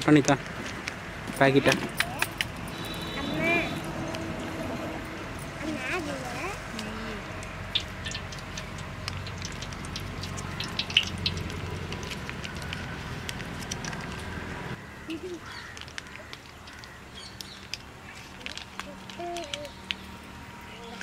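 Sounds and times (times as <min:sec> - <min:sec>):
ghee crackling in a pan: 0:05.7 - 0:21.0.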